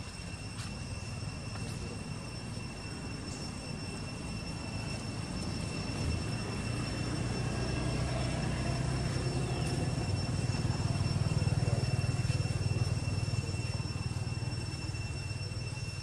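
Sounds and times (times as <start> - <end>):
faint high-pitched whine: 0.0 - 16.0
distant motor engine rumble: 0.9 - 16.0.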